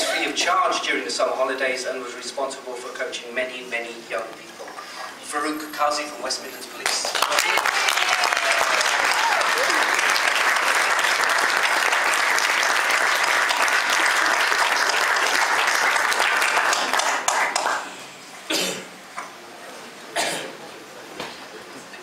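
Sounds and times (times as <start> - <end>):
audience applauding: 6.8 - 17.9.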